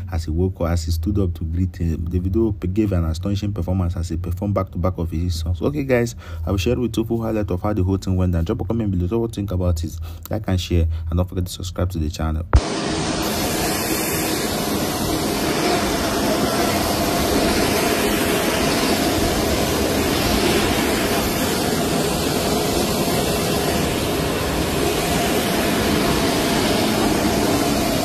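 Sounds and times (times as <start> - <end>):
faint engine whine: 12.6 - 28.0
jet engine roaring: 12.6 - 28.0.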